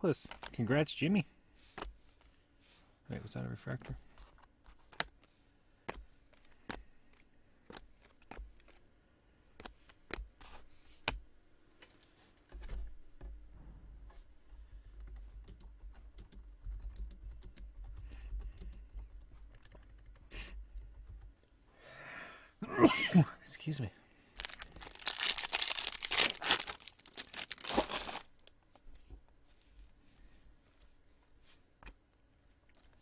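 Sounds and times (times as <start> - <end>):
low steady rumble: 13.0 - 21.4.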